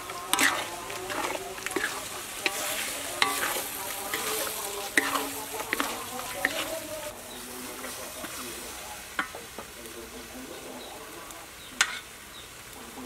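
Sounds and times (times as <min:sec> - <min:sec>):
spatula knocking on wok: 0:00.0 - 0:06.8
beef sizzling in a wok: 0:00.0 - 0:13.0.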